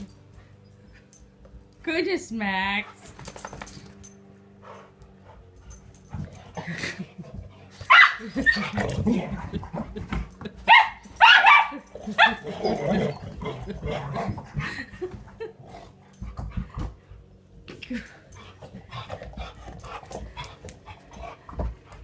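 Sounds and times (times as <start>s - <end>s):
dogs barking: 7.8s - 8.8s, 10.7s - 13.0s.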